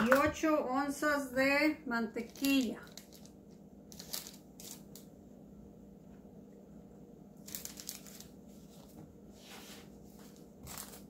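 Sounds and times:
paper rustling and crinkling: 0:03.9 - 0:04.9, 0:07.4 - 0:11.0.

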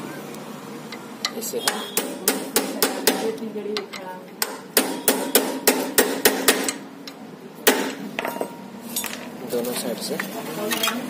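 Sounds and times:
hammer knocking on metal: 0:01.3 - 0:06.8.

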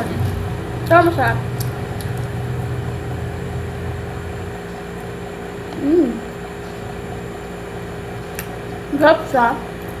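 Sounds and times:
low engine-like hum: 0:00.0 - 0:10.0
woman humming mmm: 0:05.7 - 0:06.3.

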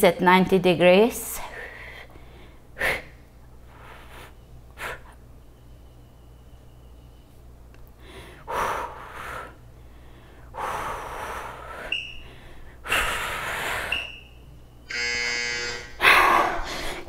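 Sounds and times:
steady buzzing tone: 0:08.8 - 0:17.0.

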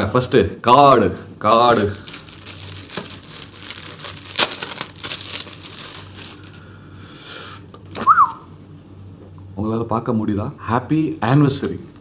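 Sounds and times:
plastic sleeve crinkling: 0:01.4 - 0:06.6.

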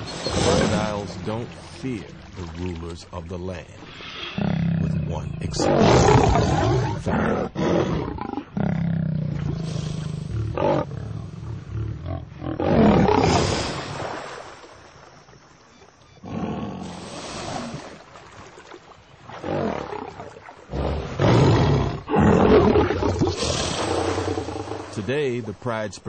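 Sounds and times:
lion roaring: 0:00.0 - 0:01.3, 0:04.3 - 0:13.6, 0:16.2 - 0:17.0, 0:19.4 - 0:25.0.

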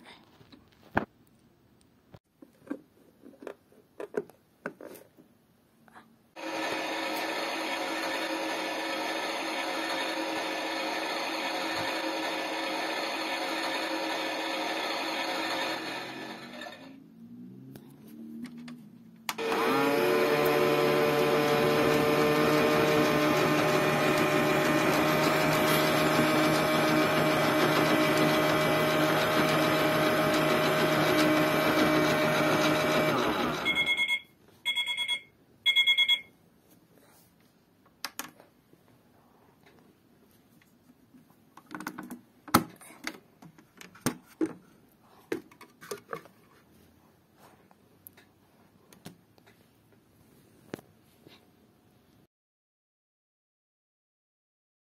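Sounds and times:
toy washing machine motor running: 0:06.4 - 0:16.9, 0:19.4 - 0:34.0.

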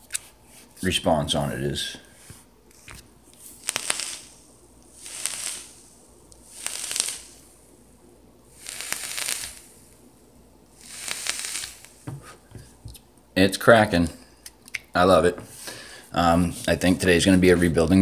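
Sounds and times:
vape coil sizzling hiss: 0:03.4 - 0:07.9, 0:08.5 - 0:10.1, 0:10.7 - 0:12.4.

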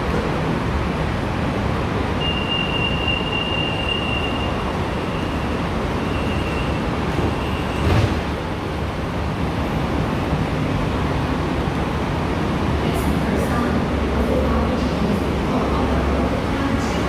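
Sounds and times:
train wheels rumbling on track: 0:00.0 - 0:17.0.

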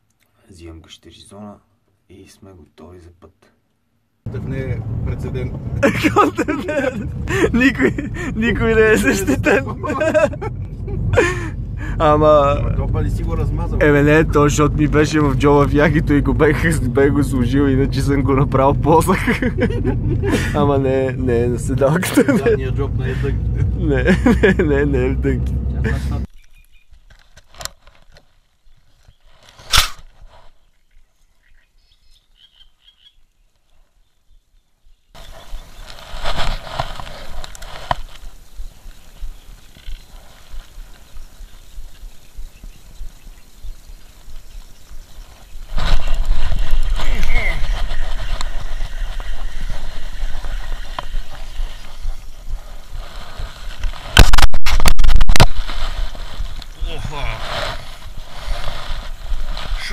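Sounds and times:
steady rushing noise: 0:04.3 - 0:26.3, 0:40.2 - 0:59.9
wind rumbling on microphone: 0:04.3 - 0:26.8, 0:35.2 - 0:59.9
frogs croaking: 0:31.3 - 0:33.3, 0:38.4 - 0:45.7
loud distorted noise burst: 0:53.2 - 0:58.8.

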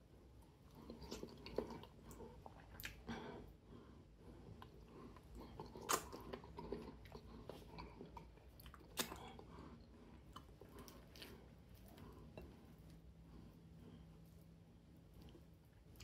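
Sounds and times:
person chewing: 0:00.5 - 0:03.5, 0:04.4 - 0:14.1.

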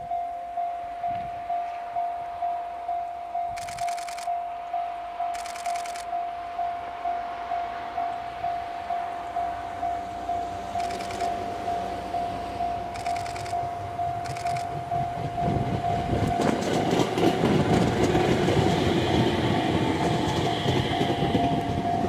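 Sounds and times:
steady high-pitched tone: 0:00.0 - 0:16.6
train wheels rumbling on rails: 0:00.0 - 0:22.0.

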